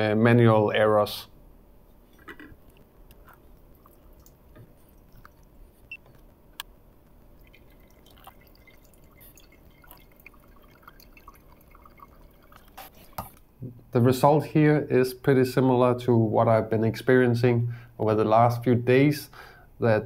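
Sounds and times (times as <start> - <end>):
drips and light ticks: 2.7 - 12.8
thin stream of water pouring: 7.2 - 13.2.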